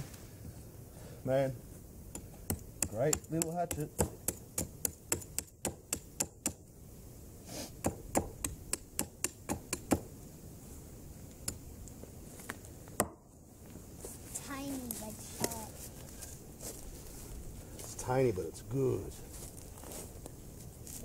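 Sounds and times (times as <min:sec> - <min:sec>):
hatchet striking wooden stake: 0:02.1 - 0:06.6, 0:07.8 - 0:10.1, 0:13.0 - 0:13.2.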